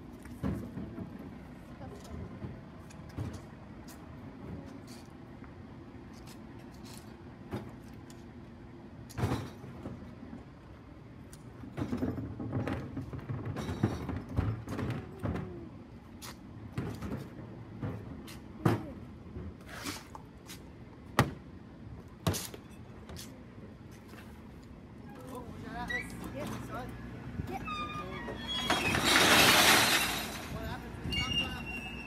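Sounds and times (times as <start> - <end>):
garbage truck idling: 27.0 - 31.0
rubbish tumbling: 28.3 - 31.6.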